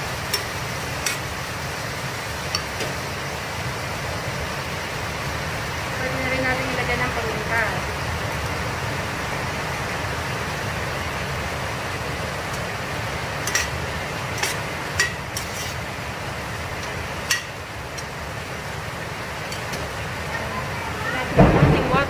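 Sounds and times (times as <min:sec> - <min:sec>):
food sizzling in pot: 0:00.0 - 0:05.2, 0:11.6 - 0:21.2
spatula clinking against pot: 0:13.4 - 0:13.8, 0:17.3 - 0:18.1.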